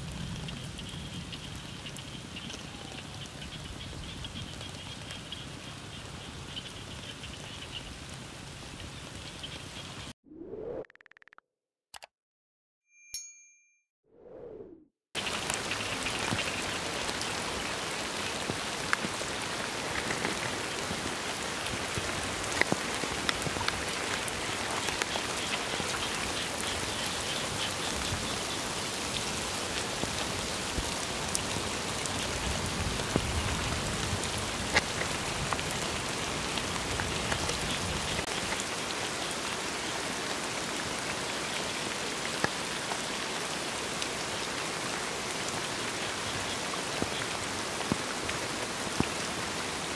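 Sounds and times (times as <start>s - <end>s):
sharp ticks of raindrops: 0.0s - 9.9s, 15.2s - 49.9s
steady rain hiss: 0.0s - 10.1s, 15.2s - 49.9s.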